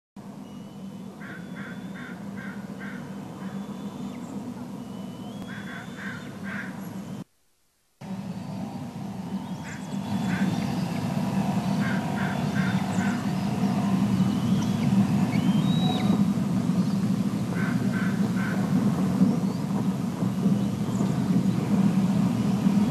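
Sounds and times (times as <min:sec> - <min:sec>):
bird calls in short notes: 0:05.0 - 0:07.2
steady low rumble: 0:08.0 - 0:22.9.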